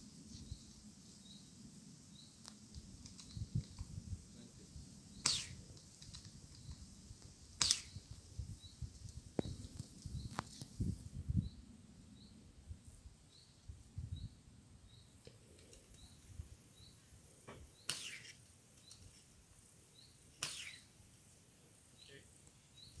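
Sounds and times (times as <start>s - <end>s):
suppressed airsoft rifle pops: 7.6s - 8.0s.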